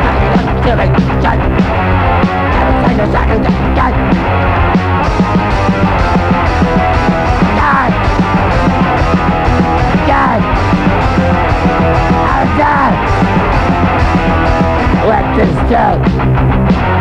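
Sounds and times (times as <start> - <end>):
vocals: 0.0 - 4.7, 7.2 - 9.1, 9.7 - 16.4
hardcore punk band playing: 0.0 - 17.0.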